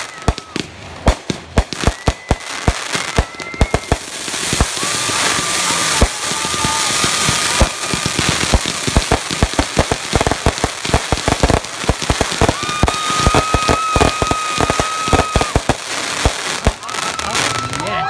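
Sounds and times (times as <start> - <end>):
fireworks crackling: 0.0 - 18.0.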